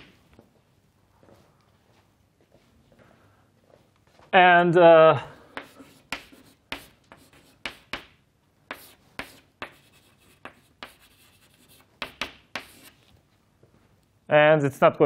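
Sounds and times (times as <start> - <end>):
chalk scraping on chalkboard: 5.5 - 8.1, 8.7 - 13.0
chalk tapping on chalkboard: 5.5 - 13.0.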